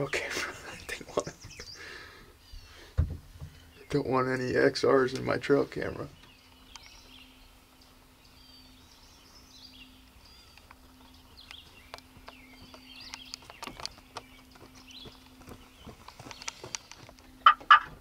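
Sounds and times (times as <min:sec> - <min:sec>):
faint low hum: 0:00.0 - 0:18.0
faint songbirds chirping: 0:00.0 - 0:18.0
sharp clicks: 0:06.2 - 0:07.0, 0:10.1 - 0:15.4, 0:16.0 - 0:17.6.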